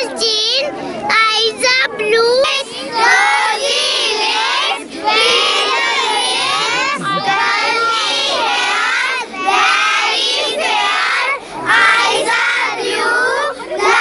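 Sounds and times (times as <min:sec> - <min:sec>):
girls singing in unison: 0:02.9 - 0:14.0.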